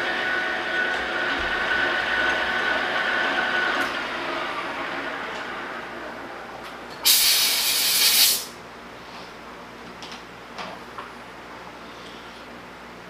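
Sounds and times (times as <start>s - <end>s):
lathe spinning down: 0.0s - 7.0s
compressed air hiss: 7.0s - 8.6s.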